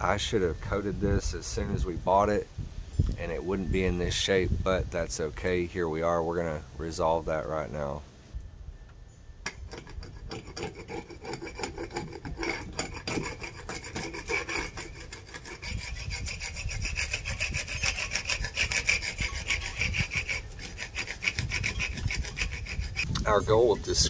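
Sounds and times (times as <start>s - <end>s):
paint scraper rasping on wood: 9.5s - 23.2s.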